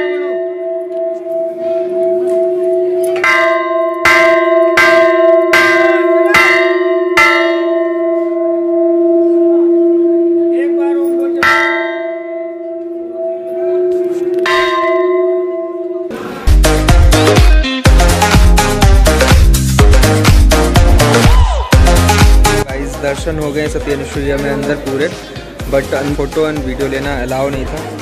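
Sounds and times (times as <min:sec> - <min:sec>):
large bell struck ringing: 0:00.0 - 0:16.1.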